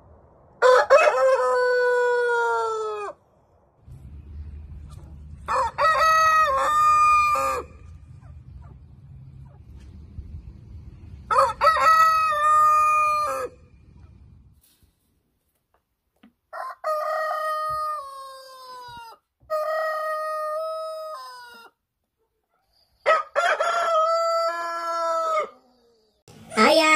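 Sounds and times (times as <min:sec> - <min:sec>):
roosters crowing: 0:00.6 - 0:03.2, 0:04.3 - 0:08.8, 0:10.9 - 0:14.1, 0:16.5 - 0:21.8, 0:23.0 - 0:25.8
low steady rumble: 0:03.2 - 0:14.6.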